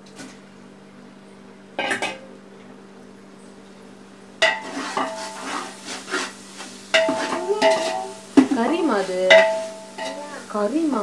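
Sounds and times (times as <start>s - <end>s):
faint steady hum: 0.0s - 11.0s
ladle scraping and stirring in pot: 4.4s - 10.2s
metal ladle clanking on pot: 7.0s - 8.6s, 9.3s - 10.2s.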